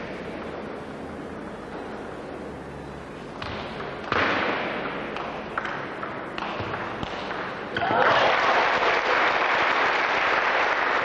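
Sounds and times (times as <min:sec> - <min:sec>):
crowd cheering and clapping: 0:07.8 - 0:11.0.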